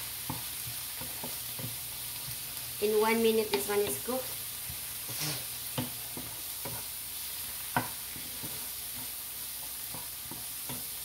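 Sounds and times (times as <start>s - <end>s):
chard sizzling in a frying pan: 0.0s - 11.0s
wooden spatula scraping a pan: 3.4s - 11.0s.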